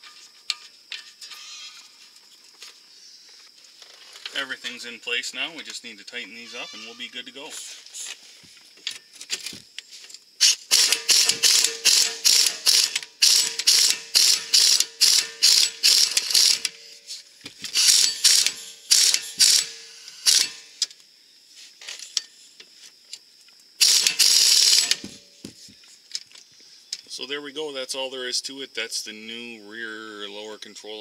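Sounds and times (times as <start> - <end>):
hand ratchet clicking: 10.4 - 16.8, 17.7 - 20.9, 23.8 - 25.3.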